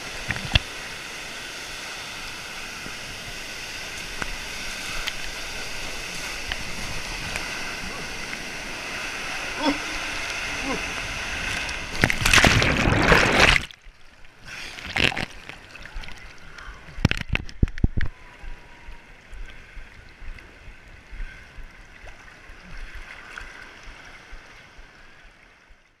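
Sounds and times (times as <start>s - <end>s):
water splash: 0.0s - 16.4s
water lapping: 0.0s - 17.4s
water slaps: 11.4s - 13.8s.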